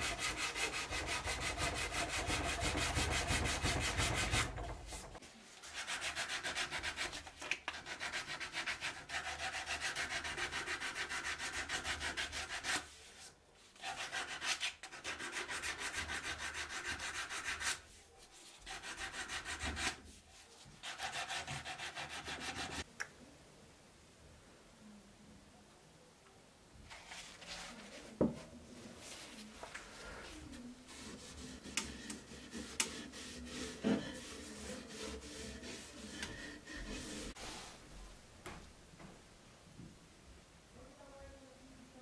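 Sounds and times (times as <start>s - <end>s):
sandpaper rubbing on wood: 0.0s - 7.2s, 7.8s - 12.9s, 13.8s - 22.8s, 30.4s - 37.6s.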